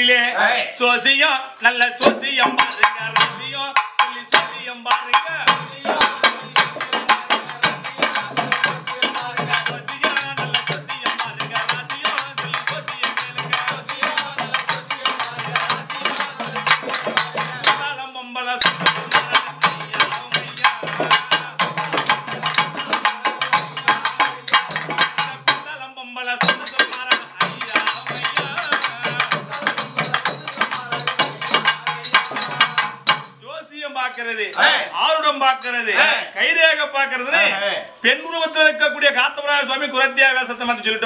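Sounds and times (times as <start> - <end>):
hand drums playing fast rhythm: 1.9 - 18.0, 18.6 - 33.5.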